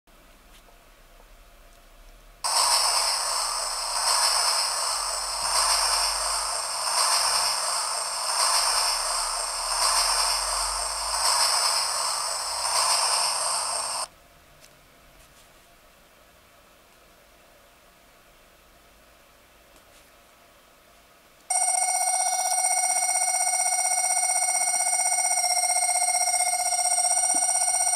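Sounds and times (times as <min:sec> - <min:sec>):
hissy rushing noise from small speaker: 0:02.4 - 0:14.1.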